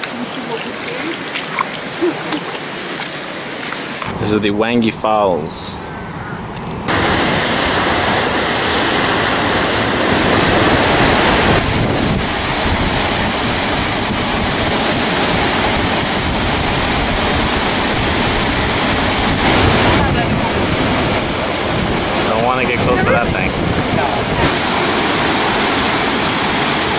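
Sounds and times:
waterfall rushing: 0:00.0 - 0:04.2, 0:06.9 - 0:26.9
wind buffeting microphone: 0:05.8 - 0:25.7.

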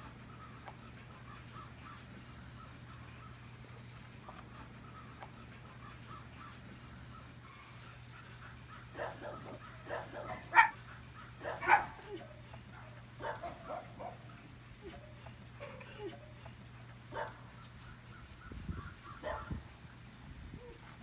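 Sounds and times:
dog barking: 0:07.6 - 0:16.3, 0:17.1 - 0:17.4, 0:19.2 - 0:19.6.

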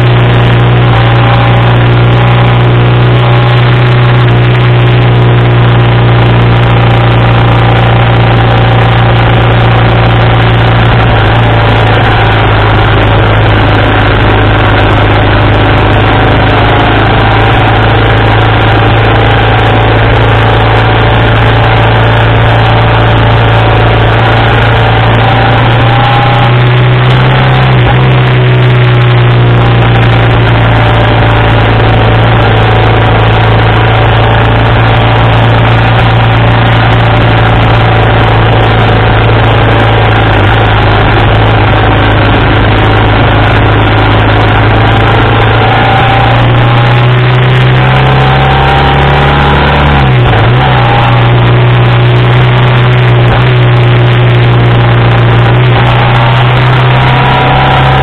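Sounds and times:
motorcycle engine running: 0:00.0 - 0:58.0
wind noise: 0:00.0 - 0:58.0.

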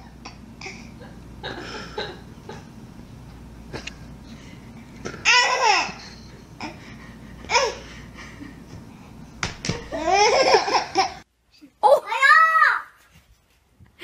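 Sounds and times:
baby laughing: 0:05.2 - 0:06.8, 0:09.9 - 0:11.2.

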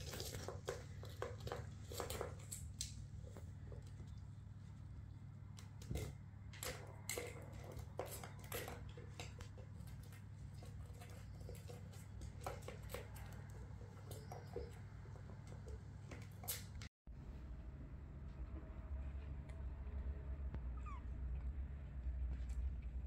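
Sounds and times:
low steady hum: 0:17.1 - 0:23.0.

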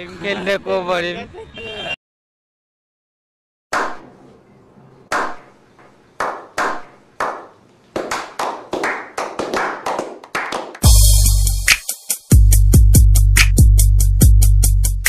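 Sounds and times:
group clapping: 0:05.1 - 0:05.4, 0:06.2 - 0:10.9
loud bass-heavy music: 0:10.8 - 0:15.0.

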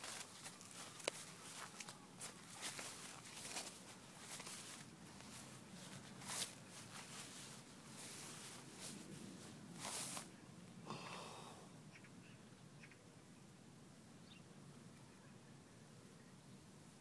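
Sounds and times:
long grass rustling: 0:00.0 - 0:10.6.

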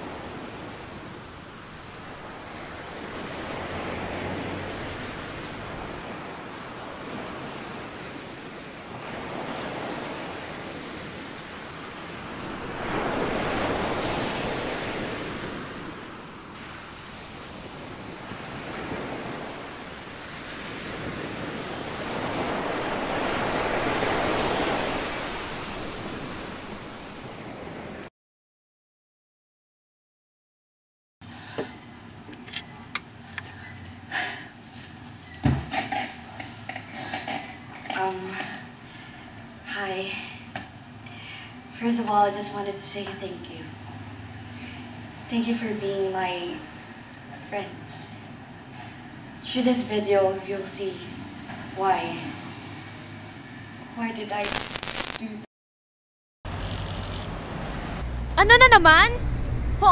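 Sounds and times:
sea waves washing onto shore: 0:00.0 - 0:28.1, 0:54.4 - 0:55.2, 0:56.5 - 0:58.1.

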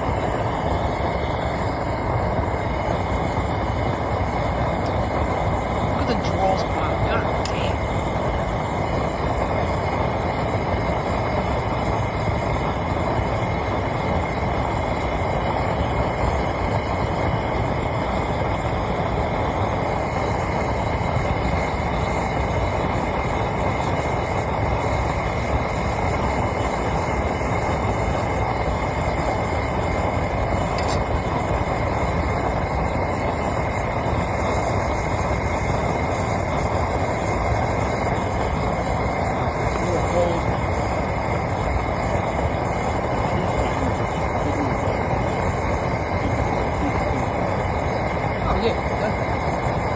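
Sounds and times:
gas burner flame rushing: 0:00.0 - 0:49.9.

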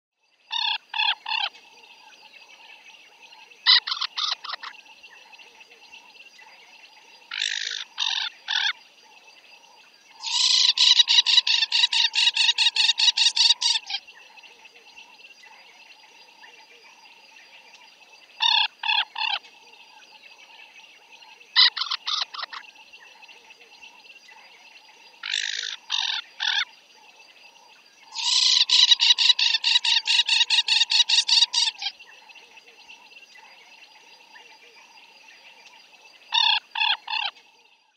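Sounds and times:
bird calling: 0:03.7 - 0:04.7, 0:07.3 - 0:08.8, 0:10.2 - 0:14.0, 0:21.6 - 0:22.6, 0:25.2 - 0:26.7, 0:28.1 - 0:32.0.

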